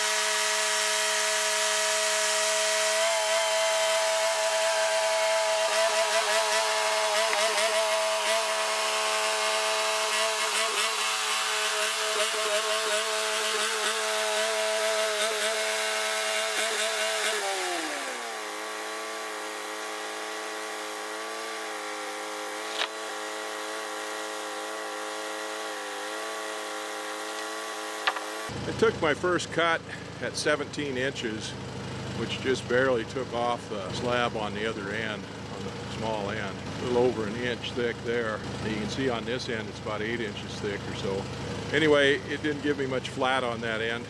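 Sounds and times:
band saw cutting log: 0.0 - 44.0
sawmill engine running: 0.0 - 44.0
sharp click: 22.7 - 23.0, 27.3 - 28.3.

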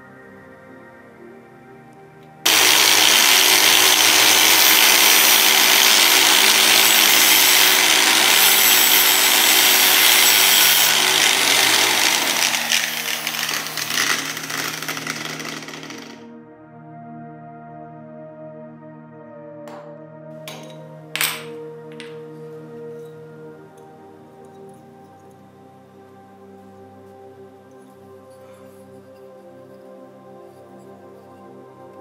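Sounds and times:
angle grinder grinding metal: 2.5 - 16.3.

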